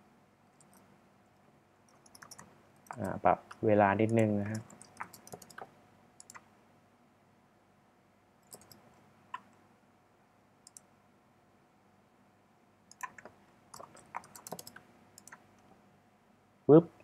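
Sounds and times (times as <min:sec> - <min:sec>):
keyboard keystrokes: 0:01.9 - 0:06.4, 0:08.5 - 0:08.8, 0:12.9 - 0:15.4.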